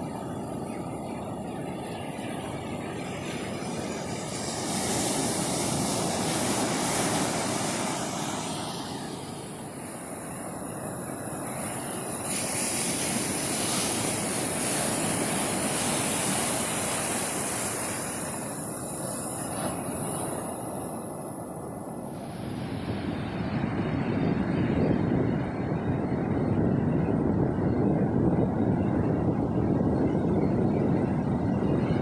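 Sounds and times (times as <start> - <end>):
waves breaking on sand: 3.0 - 25.2.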